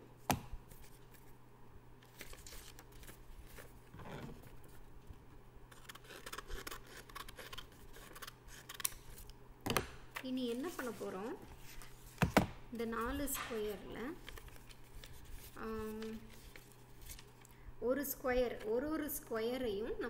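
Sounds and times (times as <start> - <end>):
paper rustling: 2.0 - 9.2, 10.4 - 12.4, 13.4 - 17.5
scissors snipping paper: 5.7 - 9.0.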